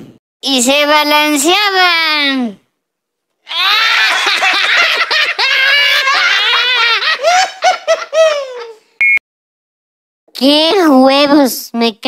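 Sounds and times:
cartoon voices laughing: 3.5s - 8.9s.

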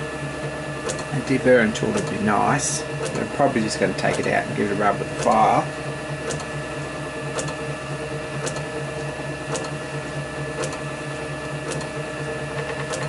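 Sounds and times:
machine hum with fast flutter: 0.0s - 13.0s.

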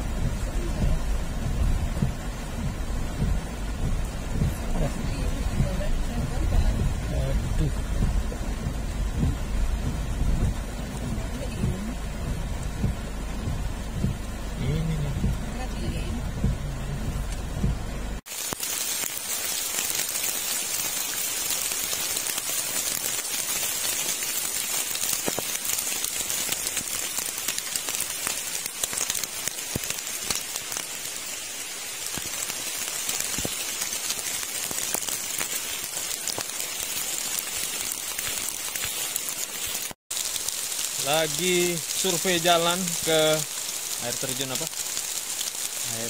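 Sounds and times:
low rumble: 0.0s - 18.2s
steady rain falling: 0.0s - 46.0s.

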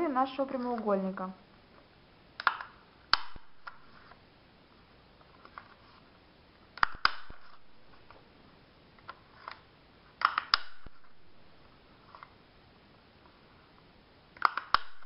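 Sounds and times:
corner punch clicking: 10.2s - 10.9s, 14.4s - 15.0s.

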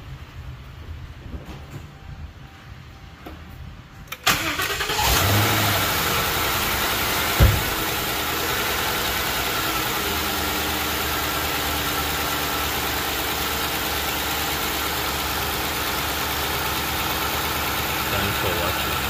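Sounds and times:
car engine starting and idling: 1.0s - 19.0s
short loud thump: 7.4s - 7.8s.

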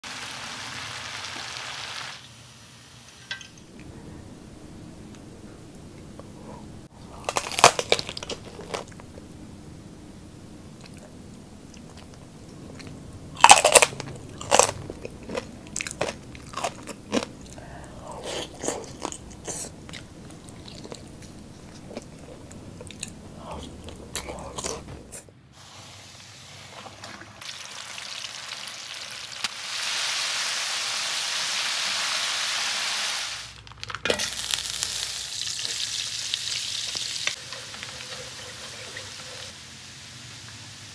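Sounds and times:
chicken deep-frying in oil sizzling: 0.0s - 3.3s, 25.7s - 40.9s
crunching chewing of fried chicken: 7.0s - 9.3s, 11.7s - 25.2s.

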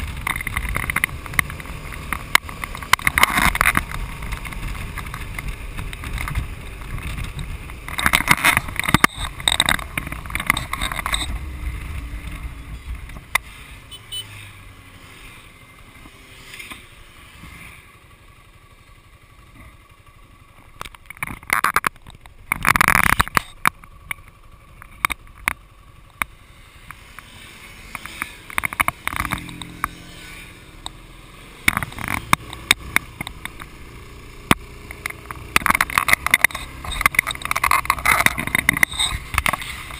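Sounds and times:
sharp ticks: 0.0s - 12.4s, 31.6s - 39.9s
motorcycle engine hum: 0.0s - 39.9s.

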